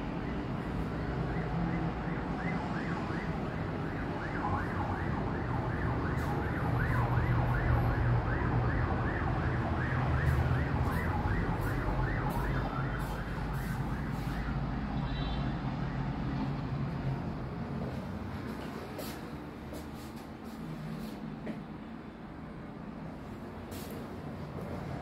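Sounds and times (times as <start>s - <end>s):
low traffic rumble: 0.0s - 25.0s
siren yelping: 0.3s - 14.7s.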